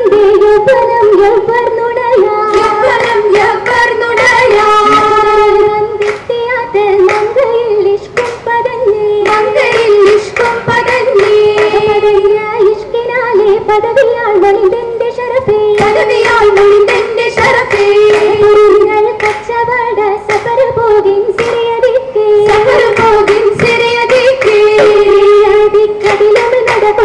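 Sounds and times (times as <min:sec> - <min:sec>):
girls singing in chorus: 0:00.0 - 0:27.0
sharp hand claps: 0:02.5 - 0:05.3, 0:06.0 - 0:06.4, 0:07.0 - 0:07.5, 0:08.1 - 0:08.5, 0:09.2 - 0:12.0, 0:15.8 - 0:19.6, 0:20.2 - 0:20.8, 0:21.4 - 0:21.8, 0:22.4 - 0:25.3, 0:26.0 - 0:27.0.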